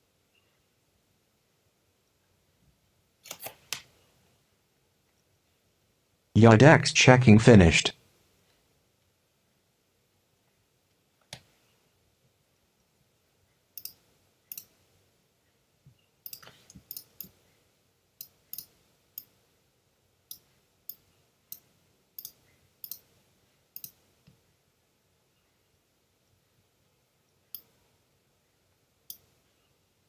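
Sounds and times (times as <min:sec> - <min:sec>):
computer mouse clicking: 0:03.2 - 0:03.9, 0:13.8 - 0:14.7, 0:16.2 - 0:17.4, 0:20.3 - 0:23.1, 0:23.8 - 0:24.0.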